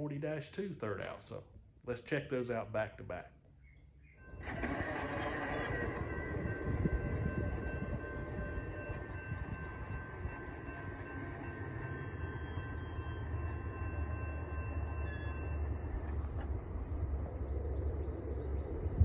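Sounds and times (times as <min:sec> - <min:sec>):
faint steady high tones: 0:04.2 - 0:18.5
freight train rumble: 0:04.2 - 0:19.0.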